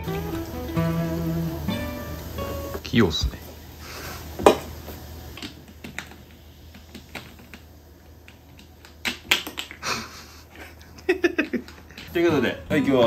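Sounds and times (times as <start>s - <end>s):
light taps of bottles: 4.4s - 6.2s.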